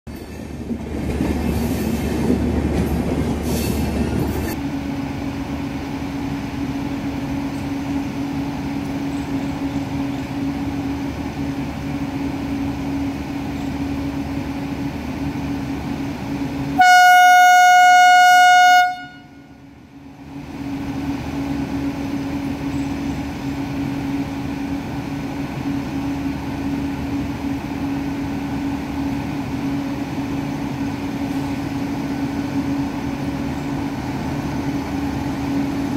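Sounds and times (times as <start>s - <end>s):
electric locomotive hum: 0.1s - 35.9s
train horn: 16.7s - 19.6s.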